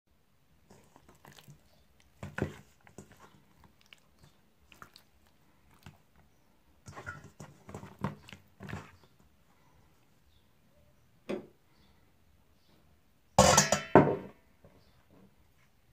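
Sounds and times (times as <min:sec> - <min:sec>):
chicken handled in metal bowl: 0:00.6 - 0:06.2, 0:06.8 - 0:09.3.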